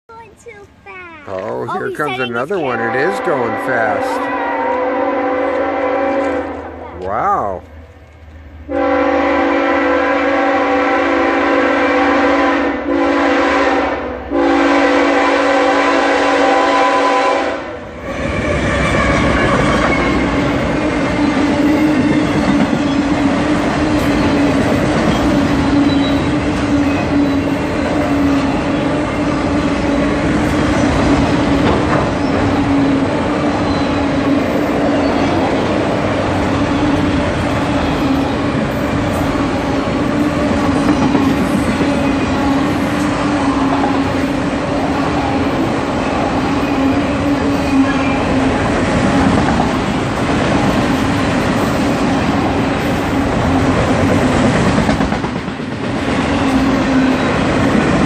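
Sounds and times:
freight train rumbling past: 0:00.1 - 0:58.0
locomotive air horn blasts: 0:02.7 - 0:06.7, 0:08.7 - 0:20.3.

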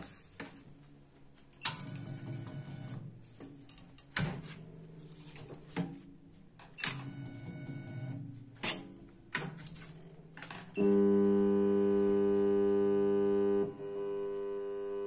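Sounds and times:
loud electrical buzz: 0:10.8 - 0:15.0.

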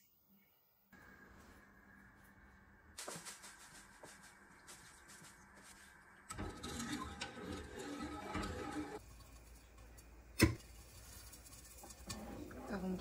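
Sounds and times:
wooden spoon stirring in saucepan: 0:03.8 - 0:13.0.

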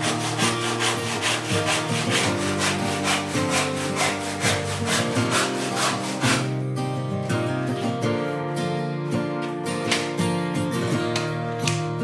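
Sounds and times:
handsaw cutting wood: 0:00.0 - 0:06.6
background music: 0:00.0 - 0:12.0.

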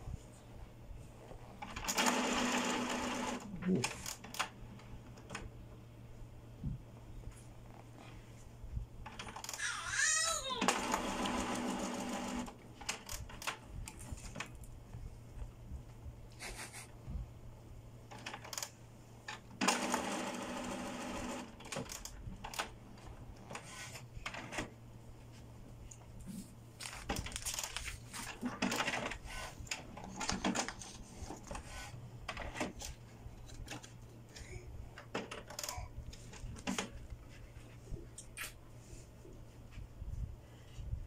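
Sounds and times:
printer clicks and clatters: 0:01.6 - 0:05.5, 0:10.6 - 0:13.6, 0:18.1 - 0:22.8, 0:26.8 - 0:33.9, 0:35.0 - 0:35.8.

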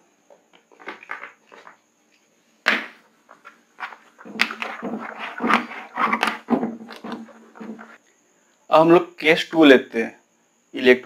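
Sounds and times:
duster scrubbing whiteboard: 0:03.8 - 0:08.0.

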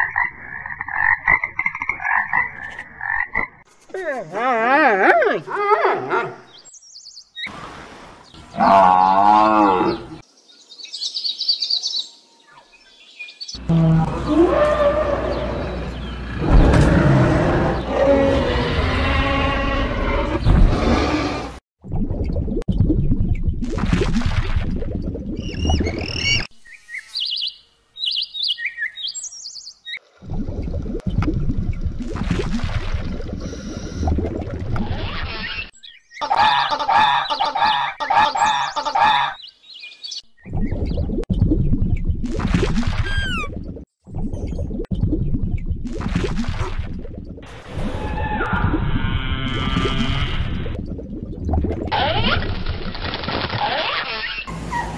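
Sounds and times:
cow mooing: 0:13.6 - 0:21.6
bird chirping: 0:25.4 - 0:30.0, 0:43.0 - 0:43.5.

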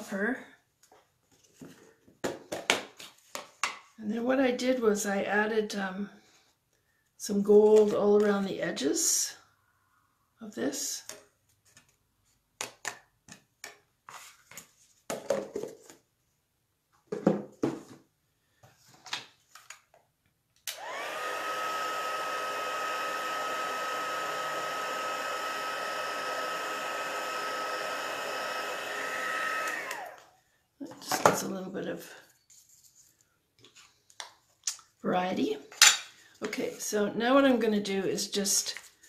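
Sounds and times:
heat gun whirring: 0:20.7 - 0:30.3.

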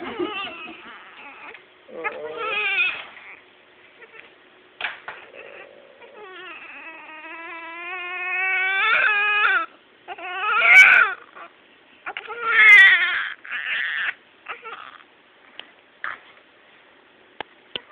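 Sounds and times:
newborn baby crying: 0:00.0 - 0:04.3, 0:05.1 - 0:15.1.

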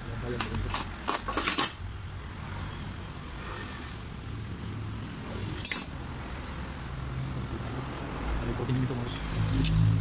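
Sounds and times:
metal parts clinking: 0:00.4 - 0:01.8, 0:05.6 - 0:06.0.

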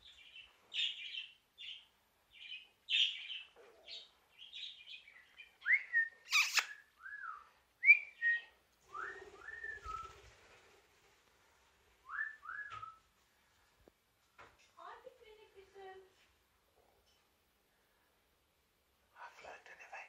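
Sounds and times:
whistled notes: 0:05.7 - 0:10.2
bird squawk: 0:06.3 - 0:06.8
budgerigar chirping and chattering: 0:06.3 - 0:06.8.

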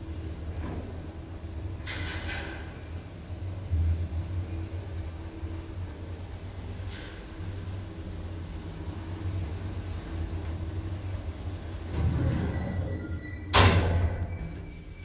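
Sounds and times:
lift car humming: 0:00.0 - 0:15.0.

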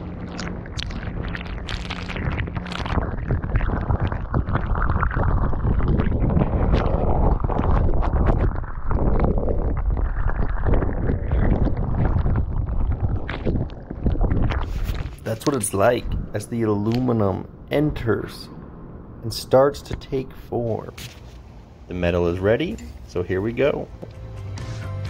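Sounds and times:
water boiling with crackling and popping: 0:00.0 - 0:15.9.

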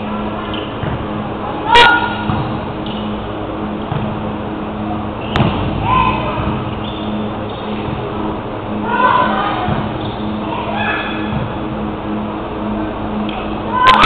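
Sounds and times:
steady low hum: 0:00.0 - 0:14.0
players shouting: 0:05.8 - 0:06.6, 0:13.6 - 0:14.0.

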